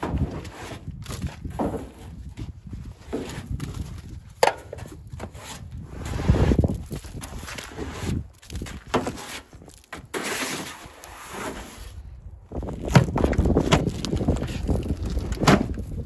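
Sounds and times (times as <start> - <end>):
snow brush swishing and scraping: 10.2 - 11.9.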